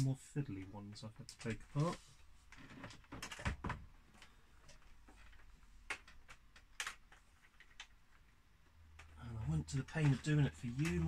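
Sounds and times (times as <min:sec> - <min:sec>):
sharp plastic clicks: 0:04.2 - 0:09.2, 0:09.9 - 0:11.0.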